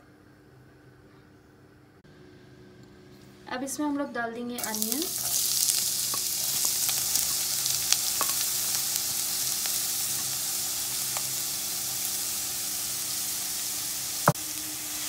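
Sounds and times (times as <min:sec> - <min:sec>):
onions sizzling in oil: 0:04.6 - 0:15.0.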